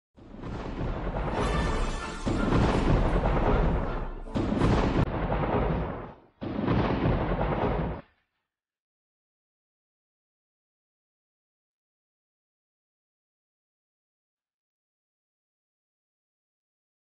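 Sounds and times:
thunder crashes: 0.2s - 8.0s.

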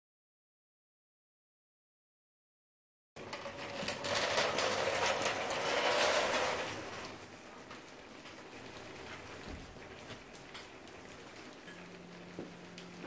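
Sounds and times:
metal tools rattling and clicking: 3.2s - 7.0s.

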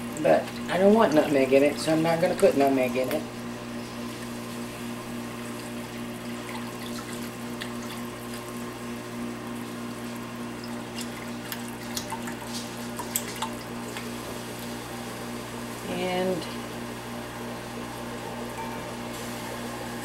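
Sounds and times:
dishwasher humming and throbbing: 0.0s - 20.0s
whisk stirring milk in a pot: 10.8s - 14.2s.

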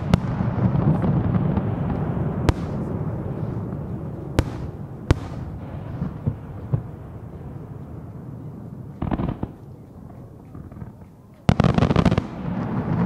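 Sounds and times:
small firework pops: 0.0s - 3.0s, 4.4s - 6.9s
soft firework thuds: 0.0s - 3.0s, 4.4s - 6.9s
firework shells booming: 0.0s - 7.1s
low rumble of echoes: 0.0s - 10.5s.

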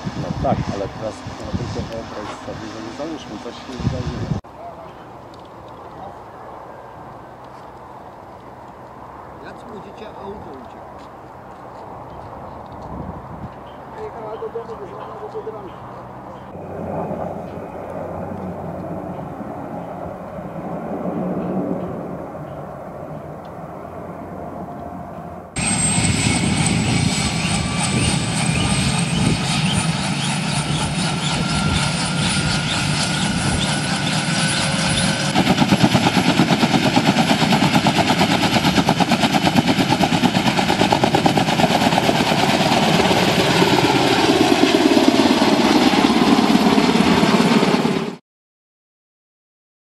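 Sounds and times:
turbine engine whine: 0.0s - 48.2s
helicopter rotors chopping: 8.6s - 48.2s.

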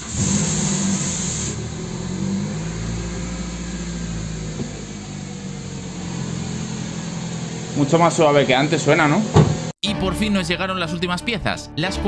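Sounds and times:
car engine idling: 0.0s - 9.7s.

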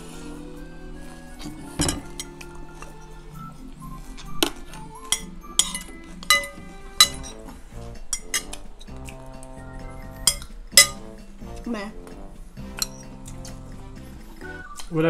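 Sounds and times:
background music: 0.0s - 15.0s
cutlery clinking on plates: 1.4s - 3.0s, 4.5s - 8.7s, 10.3s - 11.1s.

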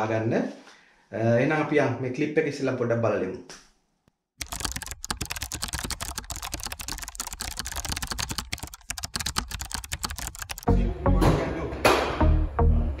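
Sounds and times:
keyboard typing clicks: 4.4s - 10.7s.

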